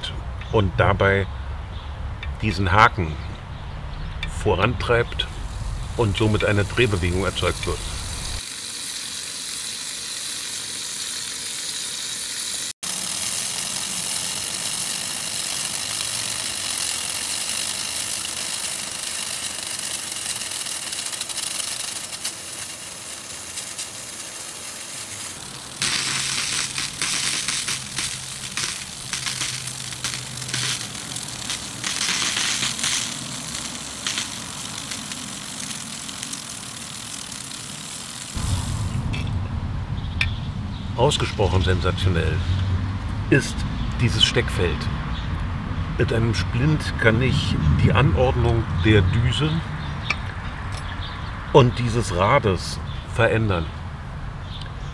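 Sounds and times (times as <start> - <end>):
lawn sprinkler water spray hissing: 4.8 - 39.2.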